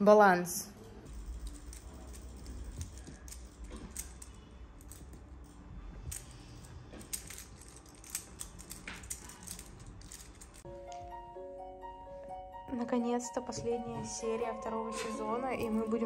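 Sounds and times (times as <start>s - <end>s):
small objects clicking and clinking: 1.1s - 10.7s.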